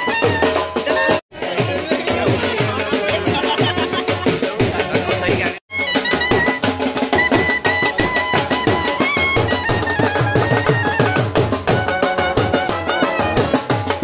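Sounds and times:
marching drums beating: 0.0s - 14.0s
clarinet melody: 5.7s - 14.0s.

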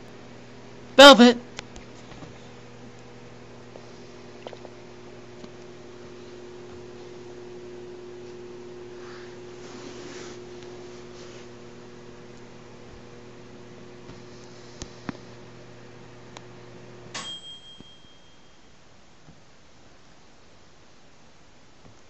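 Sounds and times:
electrical mains hum: 0.0s - 22.0s
high ring: 17.1s - 18.9s.

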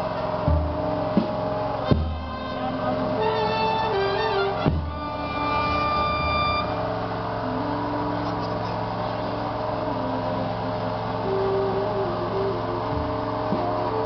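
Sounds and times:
wind band playing a slow march: 0.0s - 8.2s
low mechanical drone: 0.0s - 14.0s.

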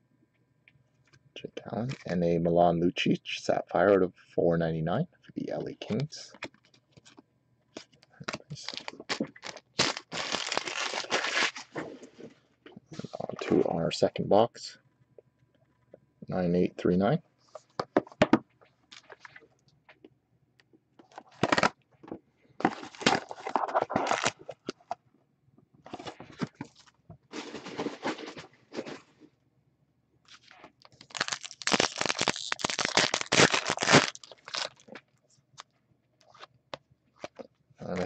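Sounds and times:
wrappers crinkling and tearing: 7.8s - 11.8s, 22.6s - 24.7s, 30.3s - 35.0s.

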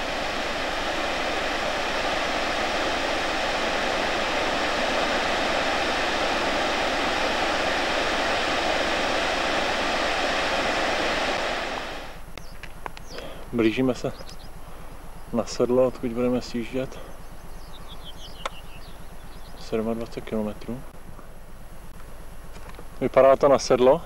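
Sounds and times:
waterfall rushing: 0.0s - 12.2s.

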